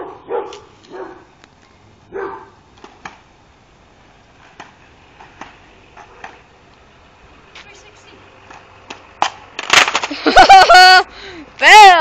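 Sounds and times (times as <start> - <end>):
small dog barking: 0.0 - 1.3, 2.1 - 2.6
caster board clicking on concrete: 8.5 - 10.2.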